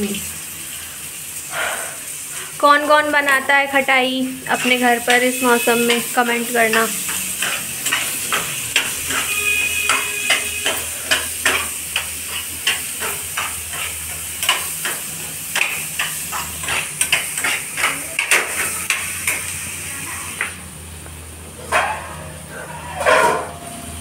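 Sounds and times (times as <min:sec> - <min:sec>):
sizzling hiss from pan: 0:00.0 - 0:20.7
metal spoon scraping saucepan: 0:04.6 - 0:11.6, 0:21.7 - 0:23.6.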